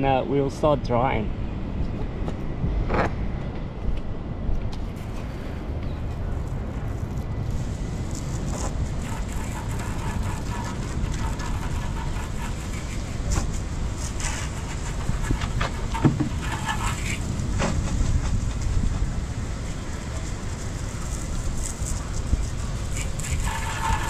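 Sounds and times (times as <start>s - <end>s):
garden hose spraying: 6.5s - 17.4s, 19.4s - 24.0s.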